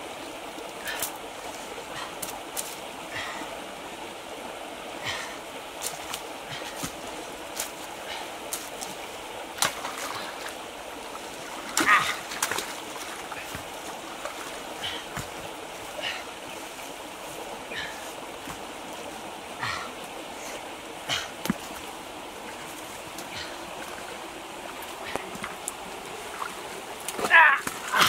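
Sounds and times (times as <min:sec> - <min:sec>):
water rushing: 0:00.0 - 0:28.0
knocks and splashes: 0:05.0 - 0:16.2, 0:21.1 - 0:21.9, 0:24.7 - 0:28.0.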